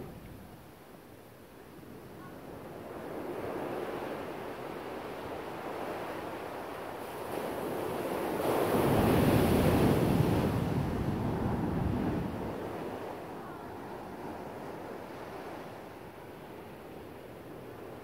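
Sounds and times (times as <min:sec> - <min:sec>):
ocean surf on beach: 0:01.7 - 0:18.0
wind on microphone: 0:07.1 - 0:18.0.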